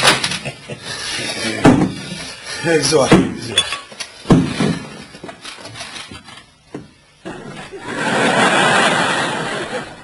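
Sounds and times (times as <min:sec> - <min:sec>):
laughter: 0:00.2 - 0:01.6, 0:07.4 - 0:10.0.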